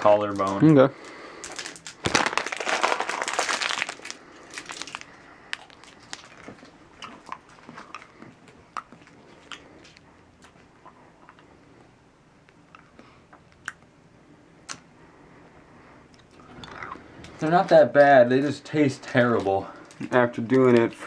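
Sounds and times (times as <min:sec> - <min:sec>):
plastic candy wrapper crinkling: 0:00.0 - 0:08.1.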